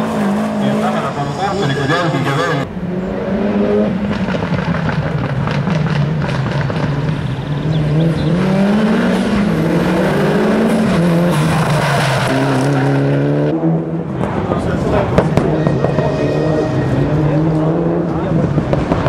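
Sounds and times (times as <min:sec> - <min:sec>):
rally car engine revving: 0:00.0 - 0:19.0
tyre squeal: 0:15.4 - 0:17.4.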